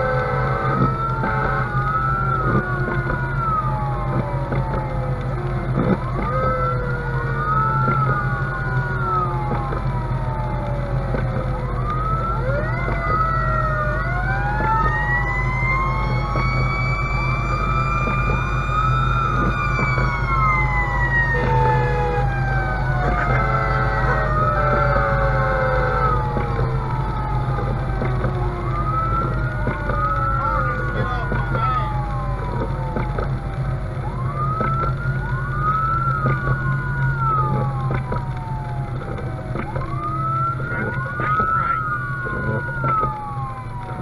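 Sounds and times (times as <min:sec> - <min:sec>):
fire engine siren wailing: 0:00.0 - 0:44.0
low engine drone: 0:00.0 - 0:44.0.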